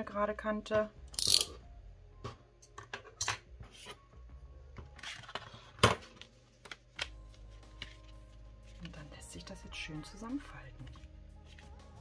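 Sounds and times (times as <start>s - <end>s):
card paper rustling: 5.0s - 9.2s.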